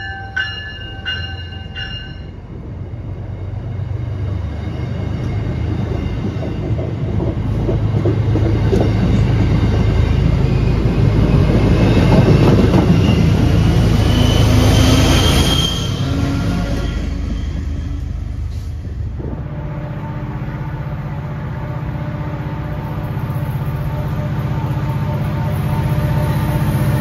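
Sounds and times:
diesel locomotive: 0:00.0 - 0:27.0
train rumbling past: 0:00.0 - 0:27.0
clicking train wheels: 0:05.0 - 0:19.1
high wheel squeal: 0:09.9 - 0:18.1.

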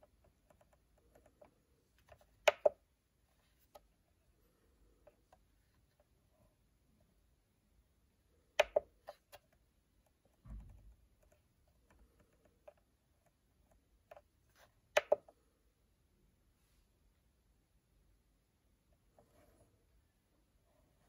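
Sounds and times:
dull thump: 0:10.4 - 0:11.0.

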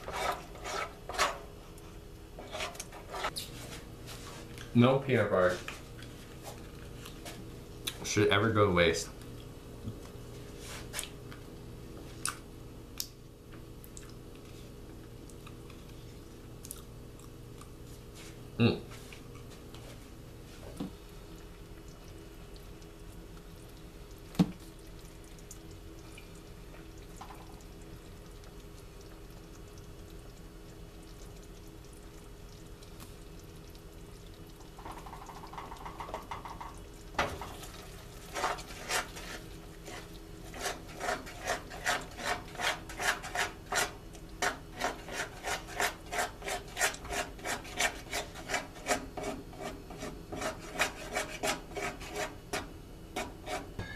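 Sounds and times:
spoon scraping a saucepan: 0:00.0 - 0:01.5, 0:02.4 - 0:03.4, 0:38.3 - 0:53.9
faint steady hum: 0:00.0 - 0:53.9.

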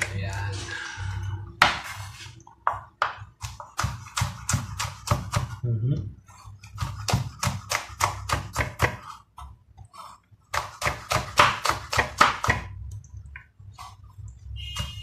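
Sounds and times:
knife chopping on wooden board: 0:01.6 - 0:01.9, 0:02.6 - 0:05.6, 0:06.6 - 0:12.7.

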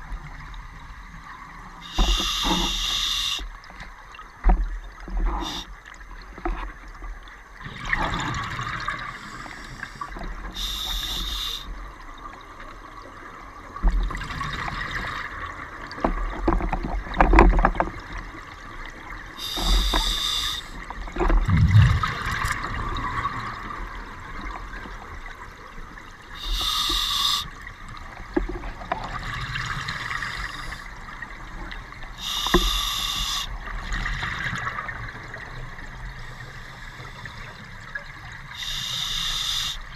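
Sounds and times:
regulator hissing inhales: 0:01.8 - 0:03.4, 0:05.4 - 0:05.7, 0:09.1 - 0:11.7, 0:19.4 - 0:20.8, 0:26.4 - 0:27.5, 0:32.2 - 0:33.5, 0:38.6 - 0:39.9
exhaled bubbles gurgling: 0:07.6 - 0:12.3, 0:19.2 - 0:36.2.

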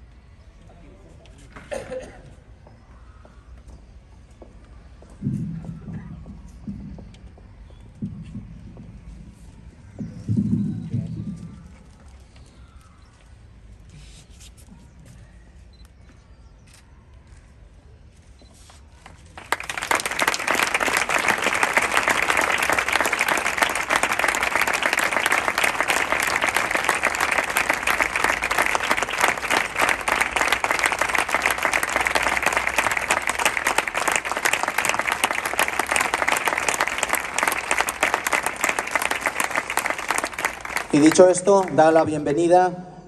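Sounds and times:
audience applauding: 0:19.1 - 0:42.1.

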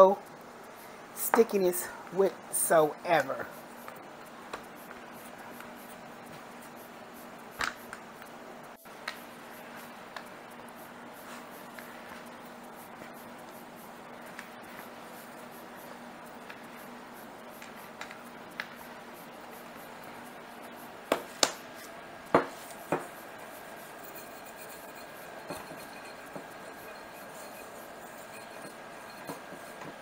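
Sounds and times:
hands kneading dough: 0:08.9 - 0:30.0
dough knocking on board: 0:21.1 - 0:21.6, 0:22.3 - 0:23.2.

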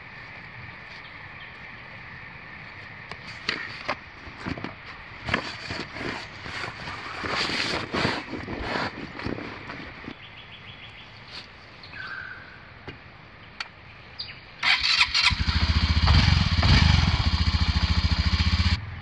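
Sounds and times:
bag rustling and crinkling: 0:05.2 - 0:10.1.

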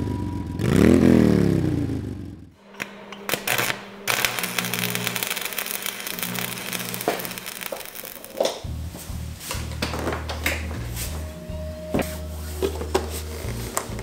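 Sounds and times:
music with low chords: 0:08.6 - 0:14.0.

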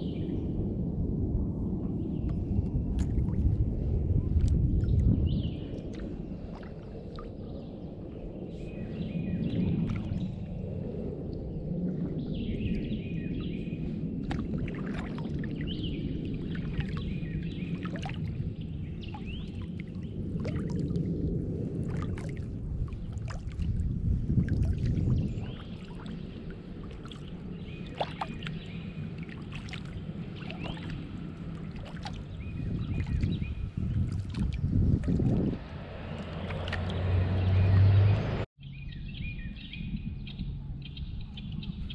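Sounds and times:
steady low rumble: 0:00.0 - 0:41.9
paddle strokes splashing: 0:05.6 - 0:07.4, 0:14.2 - 0:18.4, 0:19.0 - 0:21.1, 0:21.7 - 0:23.8, 0:24.4 - 0:37.9
birds chirping: 0:25.0 - 0:34.8, 0:35.4 - 0:41.9.

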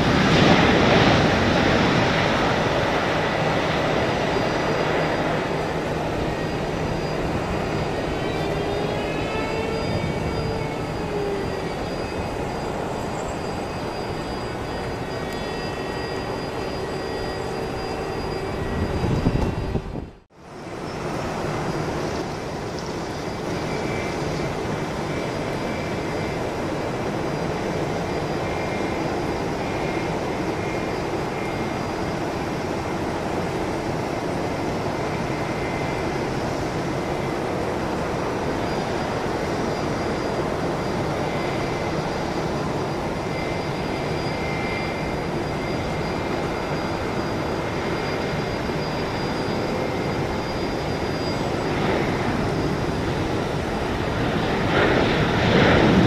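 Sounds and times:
faint high whine: 0:00.0 - 0:56.0
jet engines running: 0:00.0 - 0:56.0.

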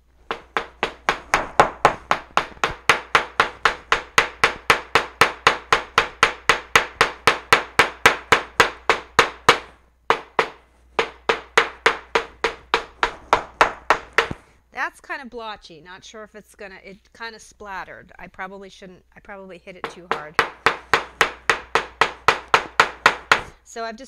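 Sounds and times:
hammer pounding on cutting mat: 0:00.2 - 0:14.5, 0:19.8 - 0:23.6.

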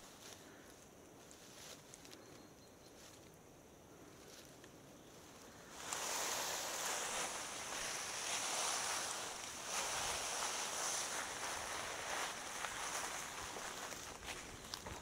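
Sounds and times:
bike tyres rolling on trail: 0:05.2 - 0:15.0.

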